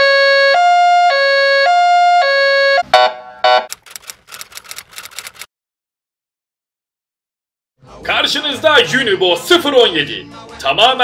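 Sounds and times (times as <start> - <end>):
two-tone ambulance siren: 0.0 - 3.7
crackling clicks: 3.7 - 5.5.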